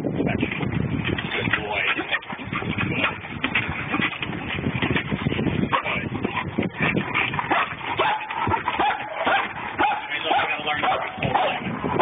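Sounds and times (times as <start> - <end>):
dog short barks: 7.5 - 11.6.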